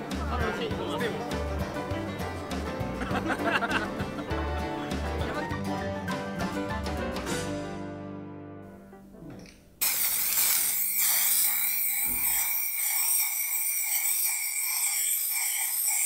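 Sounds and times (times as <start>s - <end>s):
spray paint can hissing: 9.8s - 16.0s.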